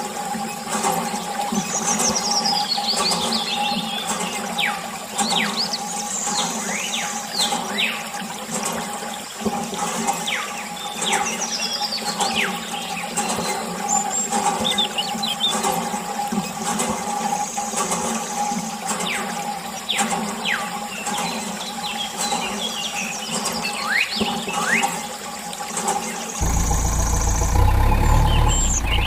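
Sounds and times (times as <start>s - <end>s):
steady hum: 26.4s - 29.0s.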